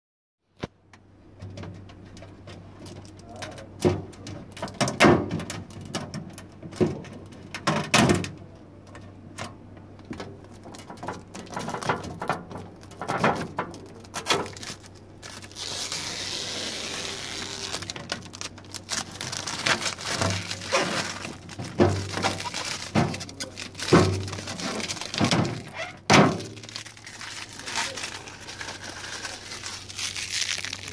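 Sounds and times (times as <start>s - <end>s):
plastic film peeling: 10.4s - 30.9s
plastic drawer knocks and thunks: 25.1s - 26.5s.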